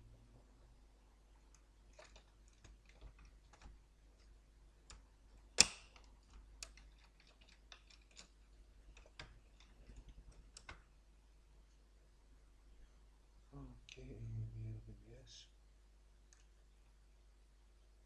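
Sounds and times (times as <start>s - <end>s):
motherboard clicking into metal chassis: 4.9s - 10.8s.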